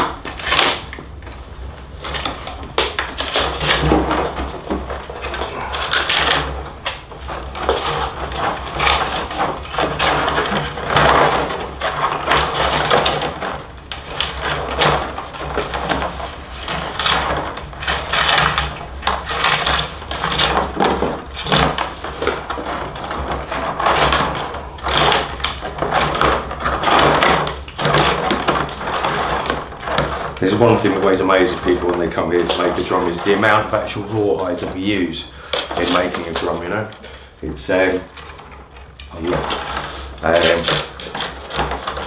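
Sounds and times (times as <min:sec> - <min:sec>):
rawhide lacing scraping: 0:00.0 - 0:42.0.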